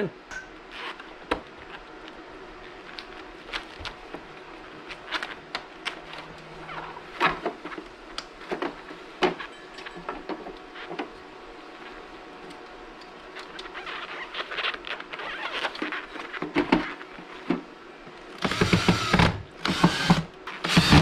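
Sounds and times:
bubble wrap rustling: 0.8s - 9.2s, 12.8s - 18.3s.

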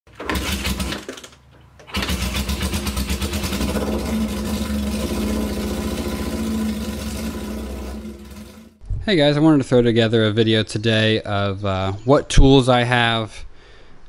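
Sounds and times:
motorcycle engine running: 1.9s - 8.8s.

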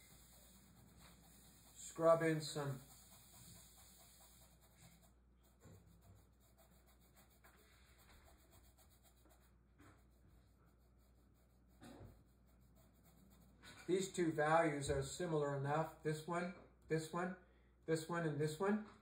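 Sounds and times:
paintbrush scrubbing on canvas: 0.0s - 14.2s.

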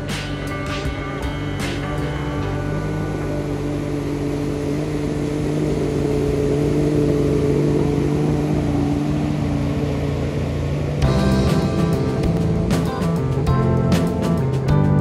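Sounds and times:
music: 0.0s - 5.1s, 11.0s - 15.0s
motorboat engine droning: 0.0s - 15.0s
rushing water: 1.6s - 14.6s.

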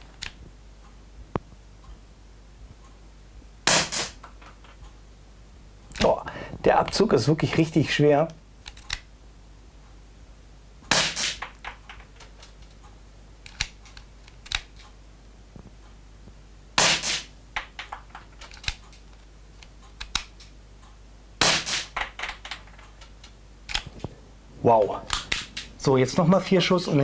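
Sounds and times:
airsoft pistol shots popping: 3.7s - 4.2s, 10.9s - 11.6s, 16.8s - 17.3s, 21.4s - 22.0s.

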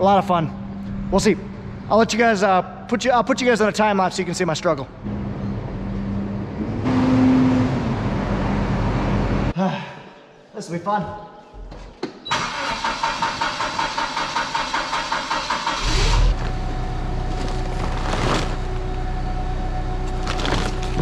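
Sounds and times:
engine cranking and idling: 12.3s - 21.0s.

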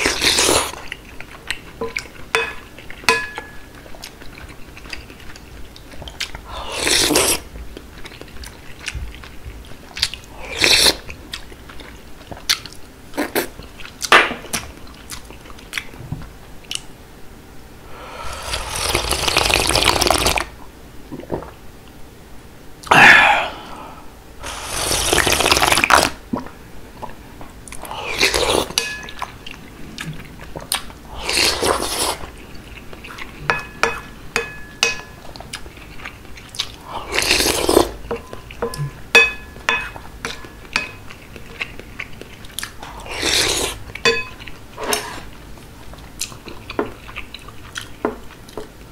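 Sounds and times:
wet chewing: 0.0s - 16.0s, 35.2s - 39.0s, 40.2s - 48.7s
loud slurps: 18.2s - 20.5s, 24.4s - 26.2s.

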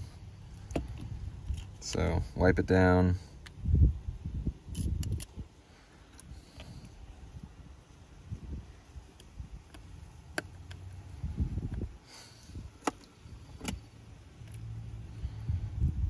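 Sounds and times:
low rumbling handling noise: 0.0s - 16.0s.

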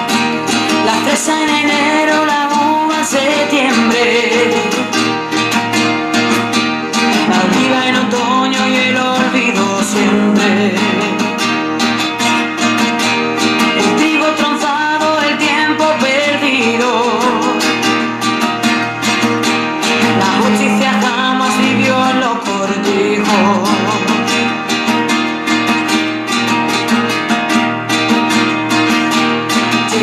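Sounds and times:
person singing: 0.0s - 11.7s, 13.6s - 24.7s, 29.7s - 30.0s
strummed acoustic guitar: 0.0s - 30.0s.

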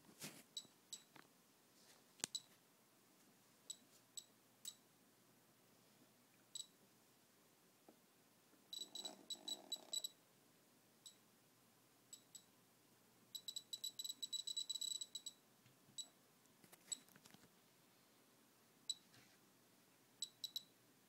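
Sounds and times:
geiger counter clicking: 8.8s - 10.2s, 13.4s - 15.4s.

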